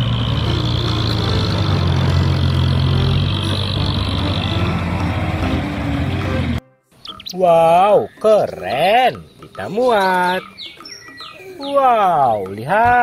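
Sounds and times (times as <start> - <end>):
diesel engine running: 0.0 - 6.6.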